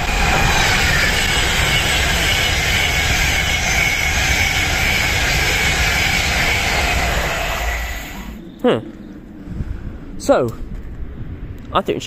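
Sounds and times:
high whine sinking in pitch: 0:00.0 - 0:09.2
electric train passing at speed: 0:00.0 - 0:10.2.

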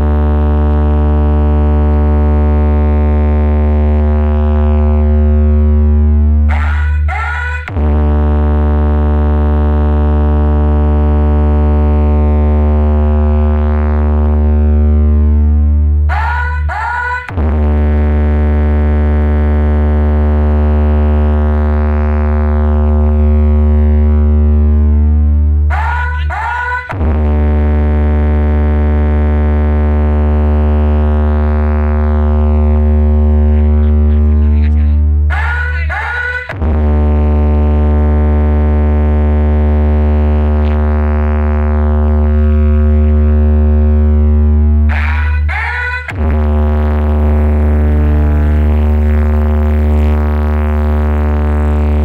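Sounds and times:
synthesizer drone with heavy bass: 0:00.0 - 0:52.0
high synth sweep: 0:25.6 - 0:27.8, 0:44.0 - 0:52.0.

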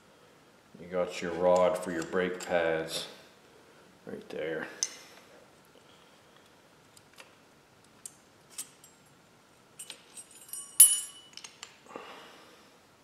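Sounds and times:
ringing metallic clink: 0:09.8 - 0:11.5
small metal clicks and clinks: 0:09.8 - 0:11.8.

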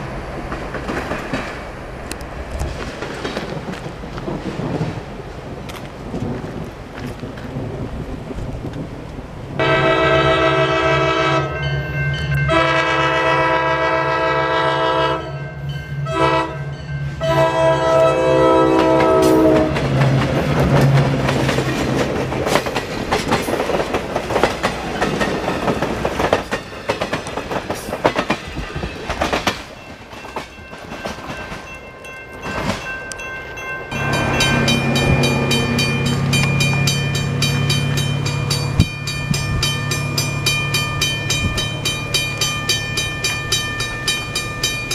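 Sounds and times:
train wheels clattering: 0:00.4 - 0:07.6, 0:18.7 - 0:33.3, 0:33.9 - 0:44.9
locomotive air horn blasts: 0:09.6 - 0:11.7, 0:12.4 - 0:19.8
diesel engine droning: 0:33.9 - 0:42.8.

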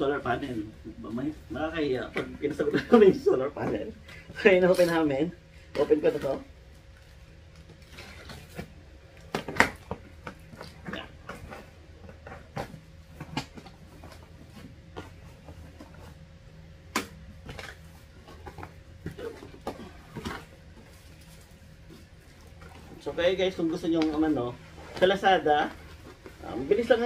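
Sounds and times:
cardboard rustling: 0:17.2 - 0:27.0.

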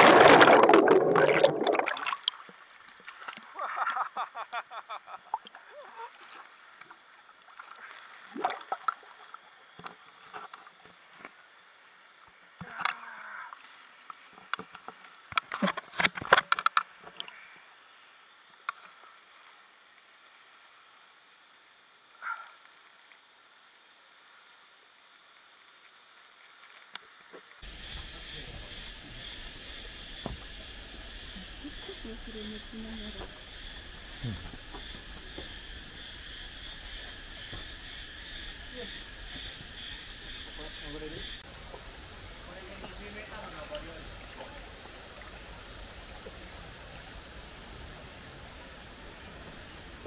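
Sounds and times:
water splashing: 0:00.0 - 0:03.6, 0:07.4 - 0:09.4, 0:42.6 - 0:47.0
forest insects hissing: 0:00.0 - 0:50.0
voices: 0:30.2 - 0:33.4, 0:42.4 - 0:45.0.

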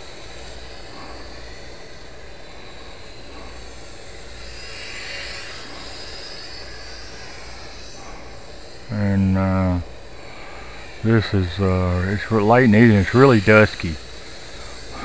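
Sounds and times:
rc airplane motor buzzing: 0:00.0 - 0:15.0
steady hiss: 0:00.0 - 0:15.0.

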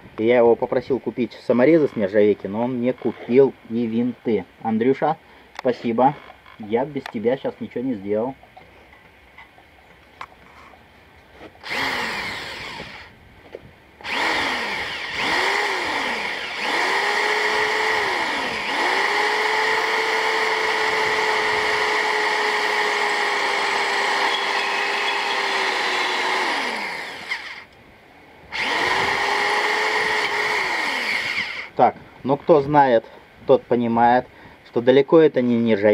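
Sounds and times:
cordless drill whining: 0:11.6 - 0:13.1, 0:14.0 - 0:27.8, 0:28.5 - 0:31.8.

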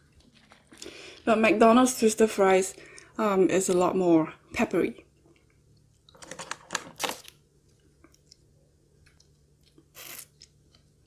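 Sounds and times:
crunching of crispy fry: 0:09.2 - 0:11.0.

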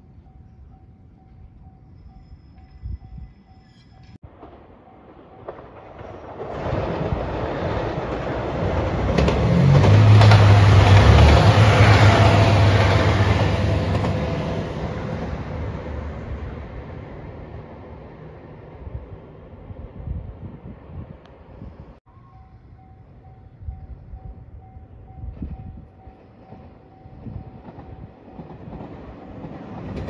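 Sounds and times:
train wheel clatter: 0:03.8 - 0:14.4, 0:25.3 - 0:30.0
diesel train engine hum: 0:08.2 - 0:20.2.

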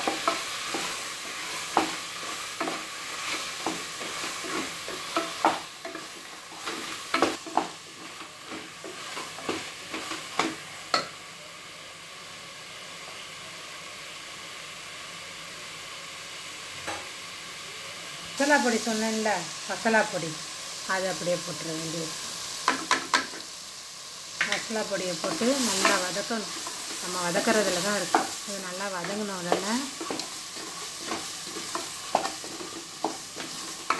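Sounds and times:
food sizzling: 0:00.0 - 0:33.9
spatula knocking and scraping pot: 0:24.4 - 0:28.4, 0:29.0 - 0:33.9.

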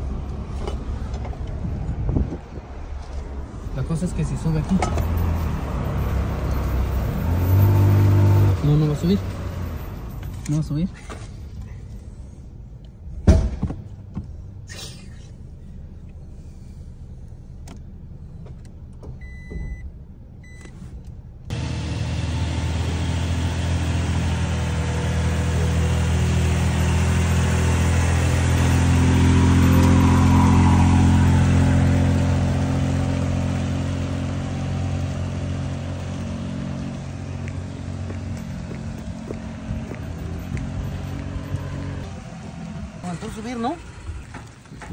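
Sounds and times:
truck engine labouring uphill: 0:04.4 - 0:10.5, 0:21.5 - 0:44.9
hum inside vehicle cab: 0:11.0 - 0:25.0
thump: 0:13.2 - 0:14.3
short beeps: 0:19.2 - 0:20.8.

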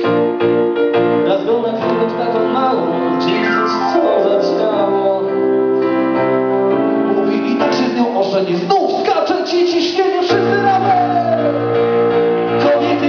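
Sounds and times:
electronic keyboard chords: 0:00.0 - 0:08.0.

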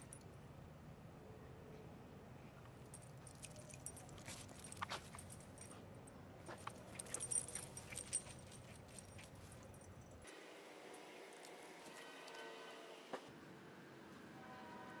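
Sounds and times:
leash and harness fittings clinking: 0:02.8 - 0:10.4.

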